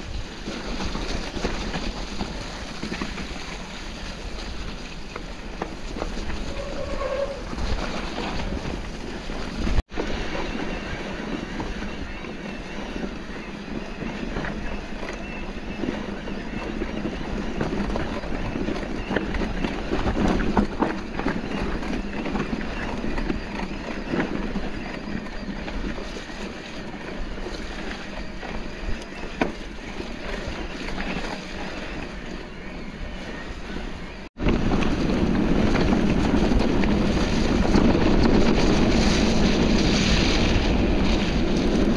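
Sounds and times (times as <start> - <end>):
bike clicks and rattles: 0.0 - 32.4
bike tyre rumble: 0.0 - 41.9
wind on microphone: 0.0 - 41.9.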